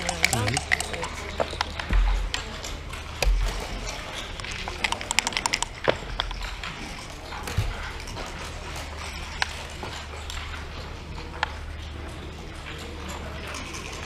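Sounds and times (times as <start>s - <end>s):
dice rattling in a cup: 0.0s - 1.5s.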